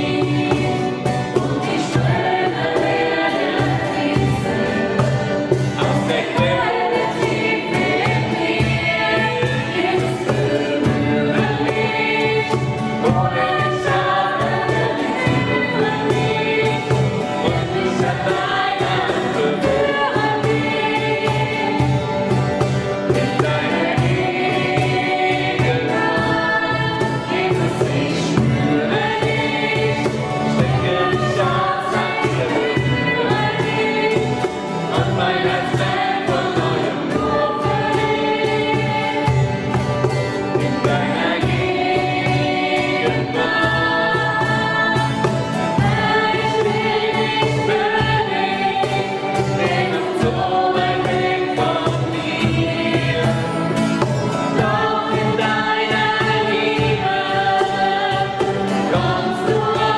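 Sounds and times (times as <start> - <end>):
acoustic guitar: 0.0 - 59.9
cajon beat: 0.0 - 59.9
two women singing together: 0.0 - 59.9.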